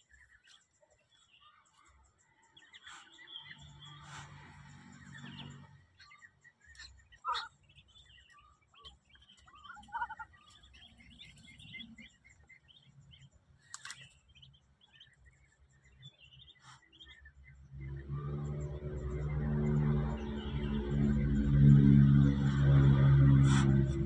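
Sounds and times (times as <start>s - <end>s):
ducklings peeping: 0.0s - 24.0s
low motor hum: 0.0s - 24.0s
sharp clicks: 13.6s - 14.2s.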